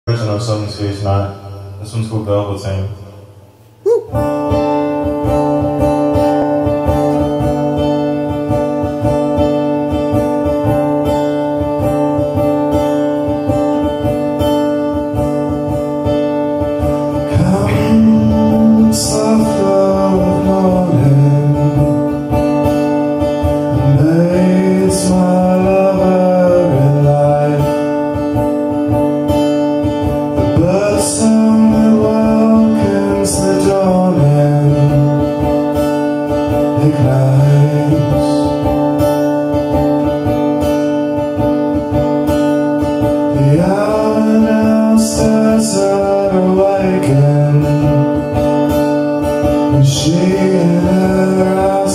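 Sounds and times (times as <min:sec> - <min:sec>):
strummed acoustic guitar: 0:00.1 - 0:51.9
man singing: 0:17.1 - 0:28.2, 0:30.4 - 0:39.0, 0:43.1 - 0:48.6, 0:49.5 - 0:51.9.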